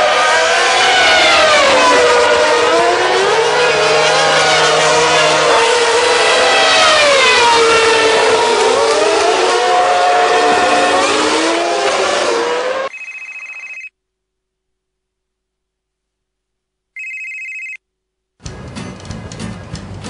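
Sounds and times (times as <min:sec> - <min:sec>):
racing car engines revving: 0:00.0 - 0:12.9.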